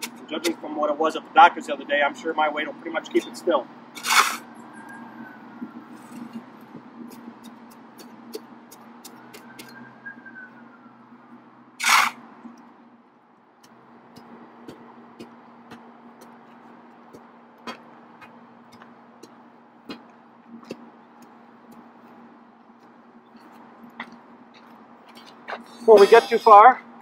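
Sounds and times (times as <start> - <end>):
short loud scrape: 4.0 - 4.5, 11.8 - 12.2.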